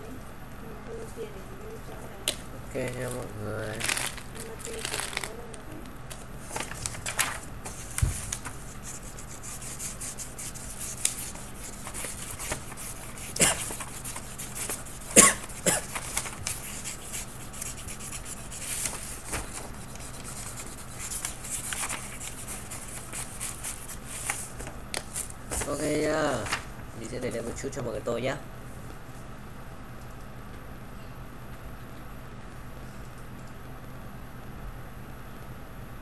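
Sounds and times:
pen scratching on paper: 0:07.8 - 0:24.4.

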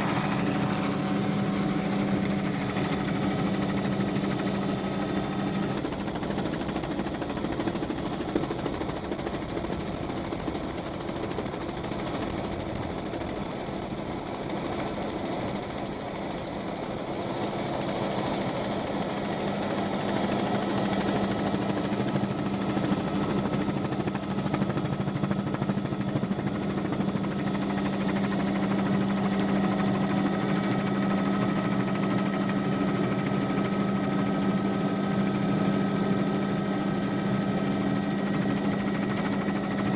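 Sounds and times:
helicopter engine and rotor: 0:00.0 - 0:39.9.

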